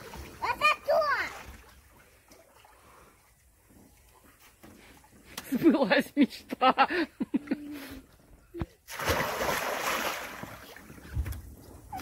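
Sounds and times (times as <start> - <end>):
water splashing in pool: 0.0 - 4.2, 8.8 - 12.0.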